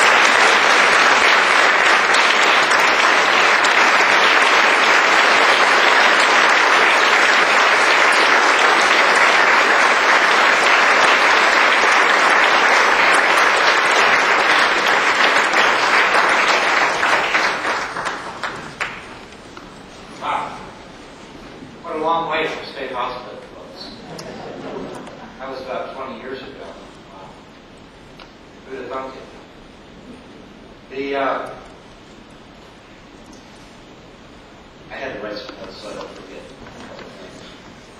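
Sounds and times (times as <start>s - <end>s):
audience applauding: 0.0s - 19.4s.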